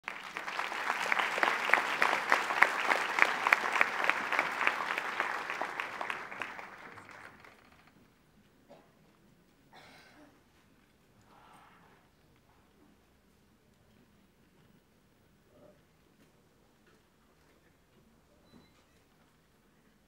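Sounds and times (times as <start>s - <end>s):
audience applauding: 0.0s - 7.9s.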